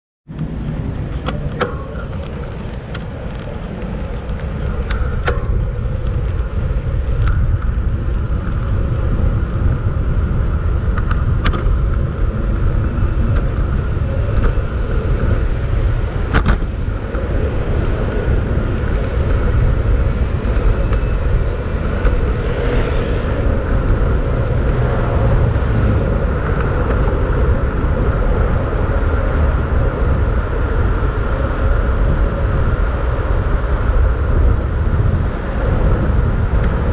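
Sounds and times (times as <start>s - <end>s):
sharp clicks and knocks: 0.3s - 9.6s, 16.3s - 17.3s
low street rumble: 0.3s - 36.9s
motor vehicles: 0.3s - 36.9s.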